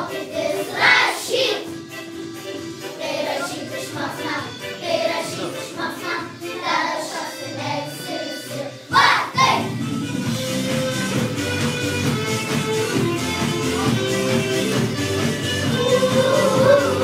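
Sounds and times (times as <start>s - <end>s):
children singing together: 0.0s - 1.8s, 2.7s - 9.7s, 15.6s - 17.0s
instrumental music: 0.0s - 17.0s.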